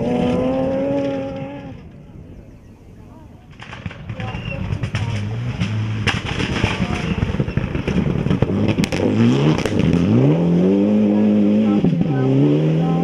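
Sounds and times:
rally car engine accelerating: 0.0 - 1.9, 4.1 - 13.0
stones clattering under tyres: 3.5 - 10.0.

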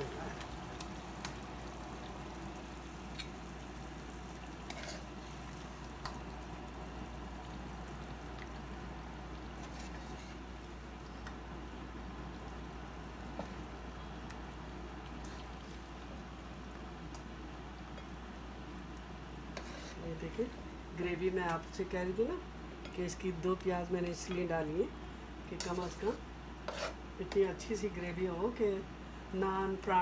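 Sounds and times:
spoon scraping a frying pan: 4.6 - 6.2, 9.6 - 10.5, 19.5 - 20.0, 25.5 - 27.5.

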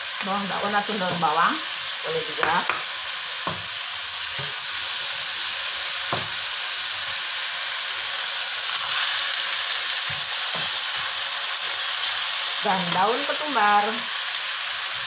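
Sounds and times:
food sizzling in hot oil: 0.0 - 15.0
spatula knocking against pan: 2.4 - 3.7, 6.1 - 6.4.

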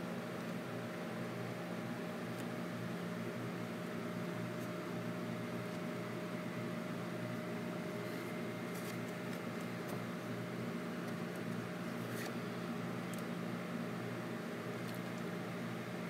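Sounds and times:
mechanical hum with faint whine: 0.0 - 16.0
photo prints shuffled by hand: 8.0 - 10.1.

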